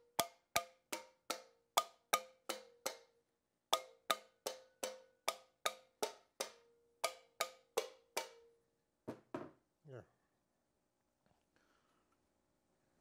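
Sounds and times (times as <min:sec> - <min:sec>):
hammer tapping metal with ring: 0:00.0 - 0:03.1, 0:03.8 - 0:08.5.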